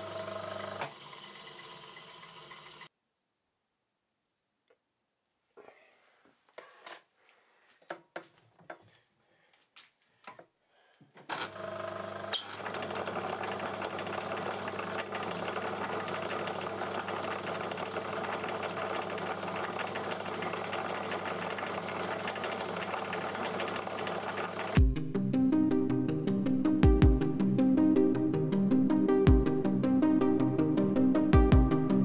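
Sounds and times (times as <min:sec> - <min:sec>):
metal lathe humming: 0:00.0 - 0:02.9, 0:11.5 - 0:24.8.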